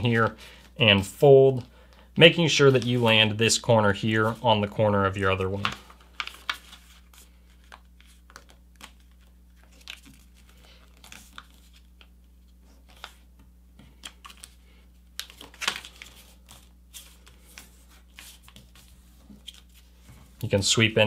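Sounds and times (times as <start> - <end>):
paper rustling and crinkling: 2.4 - 3.3, 5.4 - 20.4.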